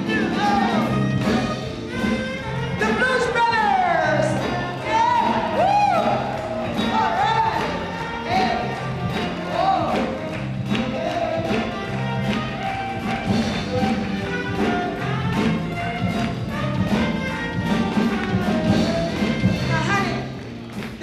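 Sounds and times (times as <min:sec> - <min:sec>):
drum beat: 0:00.0 - 0:21.0
live blues band playing: 0:00.0 - 0:21.0
piano: 0:00.0 - 0:21.0
saxophone: 0:00.1 - 0:20.4.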